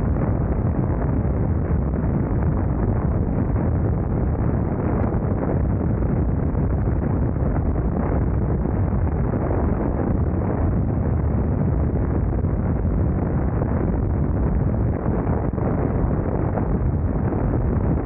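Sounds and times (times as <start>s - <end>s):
wind roaring over microphone: 0.0s - 18.0s.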